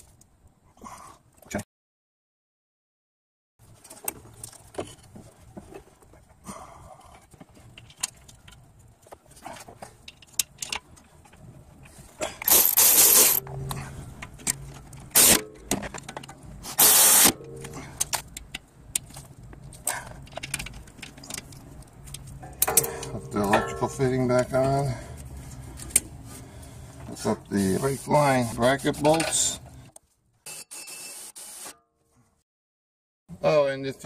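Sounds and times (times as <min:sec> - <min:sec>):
metal clinks and rattles: 0:09.9 - 0:16.5, 0:17.4 - 0:24.8.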